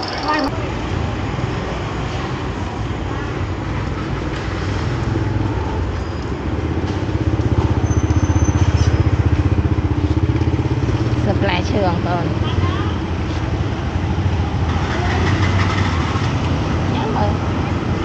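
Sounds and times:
engine running with pulsing beat: 6.7s - 12.3s.

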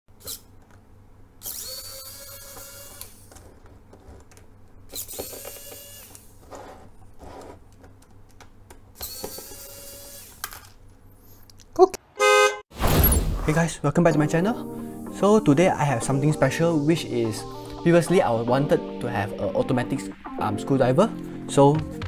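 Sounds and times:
electric screwdriver motor whining: 1.4s - 3.4s, 4.9s - 6.4s, 9.0s - 10.5s.

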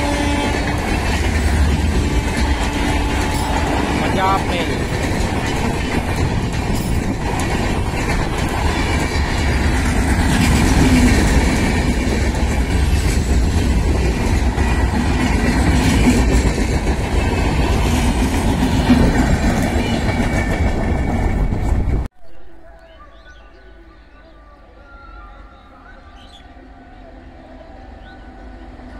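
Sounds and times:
train wheels rumbling on rails: 0.0s - 22.1s.

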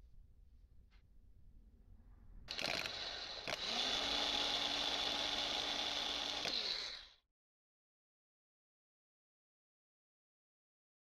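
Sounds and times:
starter motor clicking: 2.5s - 7.1s
electric motor whine: 2.5s - 7.2s.

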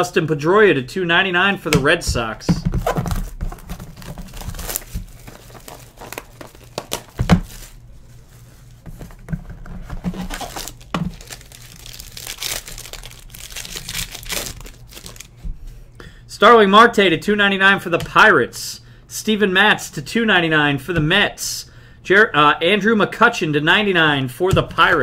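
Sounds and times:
plastic wrap tearing and crinkling: 2.8s - 7.9s, 9.7s - 15.4s.

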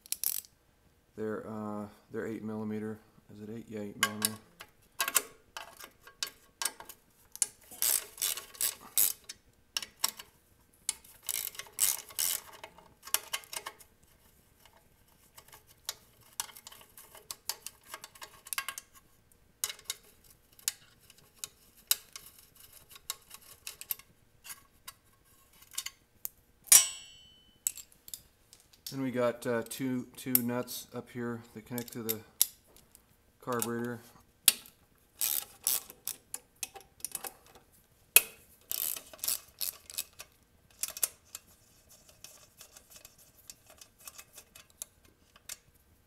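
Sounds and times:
sharp metallic clink: 26.7s - 27.8s.

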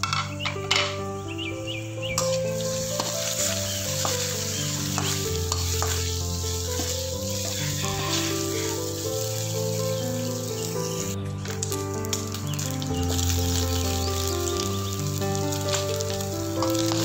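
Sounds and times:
background music with held notes: 0.0s - 17.0s
metal spatula scraping pan: 2.2s - 9.0s
food sizzling in hot oil: 2.2s - 17.0s.

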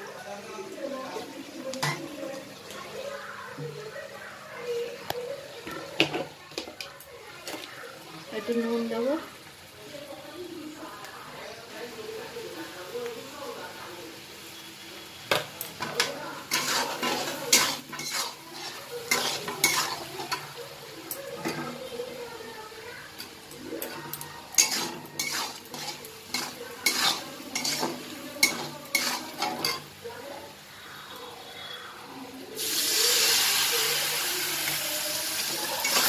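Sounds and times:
food sizzling: 0.0s - 36.0s
metal spatula scraping pan: 15.8s - 20.6s, 23.1s - 29.9s, 35.4s - 36.0s.

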